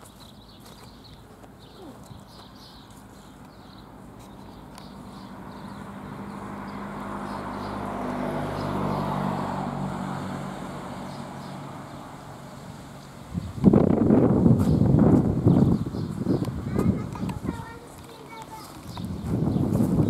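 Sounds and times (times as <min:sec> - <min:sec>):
car driving past: 0:05.2 - 0:13.5.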